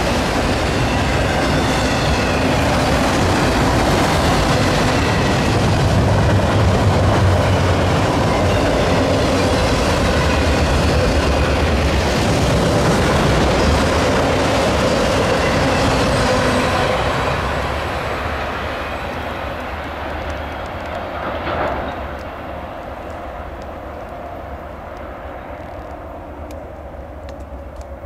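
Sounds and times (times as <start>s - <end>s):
freight train cars rolling past: 0.0s - 28.0s.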